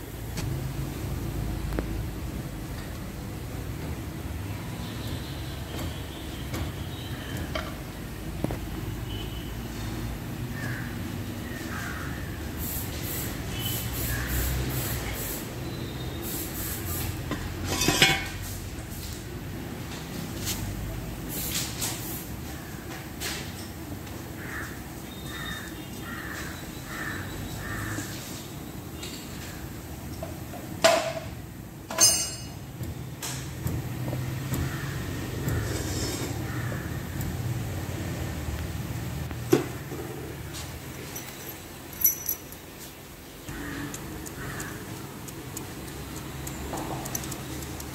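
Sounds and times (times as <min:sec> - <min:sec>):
metal tool clattering on floor: 0:17.6 - 0:18.4, 0:31.9 - 0:32.6, 0:41.0 - 0:42.7
metallic clinks: 0:31.9 - 0:32.6, 0:40.9 - 0:42.8.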